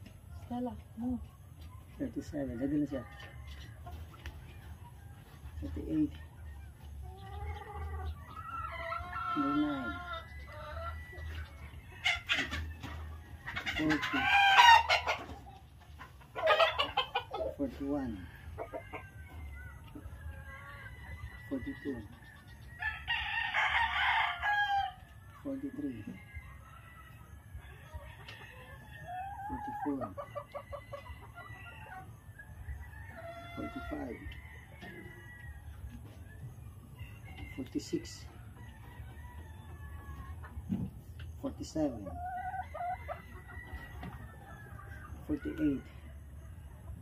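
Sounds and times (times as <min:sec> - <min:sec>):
chickens clucking: 0:00.0 - 0:47.0
rooster crowing: 0:22.8 - 0:25.0.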